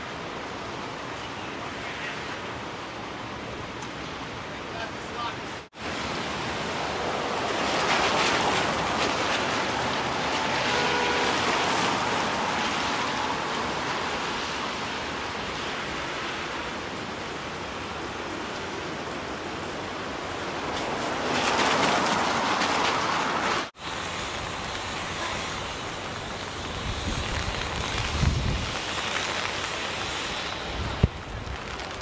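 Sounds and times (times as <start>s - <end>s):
traffic hiss on wet roads: 0.0s - 32.0s.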